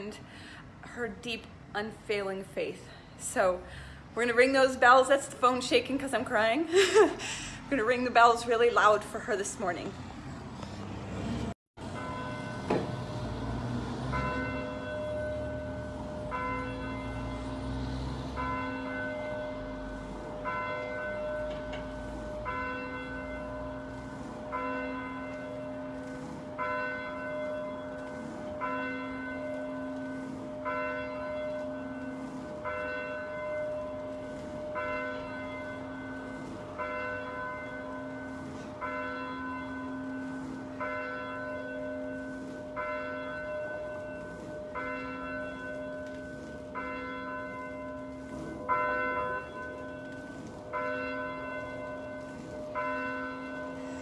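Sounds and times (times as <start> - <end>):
church bell ringing: 11.8 - 54.0.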